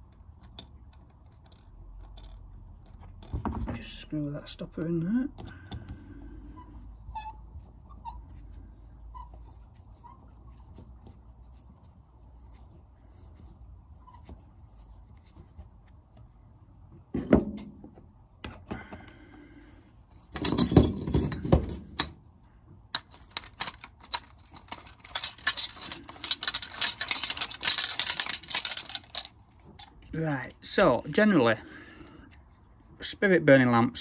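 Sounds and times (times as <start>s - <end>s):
metal scraping: 23.0s - 31.0s.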